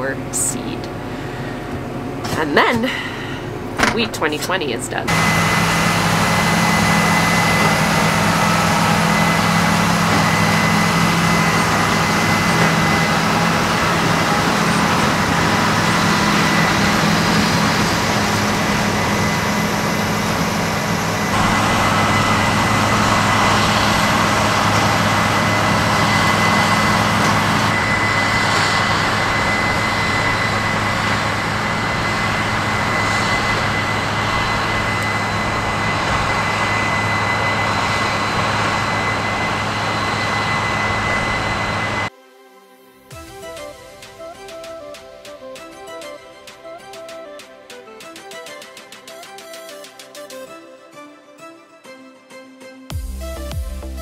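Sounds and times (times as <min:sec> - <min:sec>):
high whine: 0:00.0 - 0:50.2
tractor engine under load: 0:05.1 - 0:42.1.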